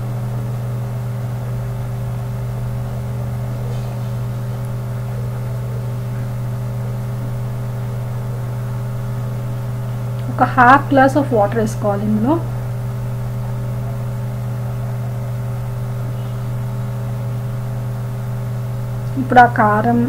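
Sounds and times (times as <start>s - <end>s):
low electric hum: 0.0s - 20.0s.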